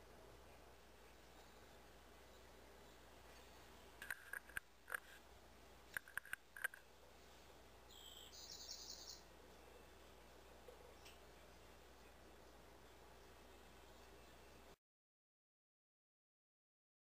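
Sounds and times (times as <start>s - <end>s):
faint high bird call: 7.9s - 9.3s.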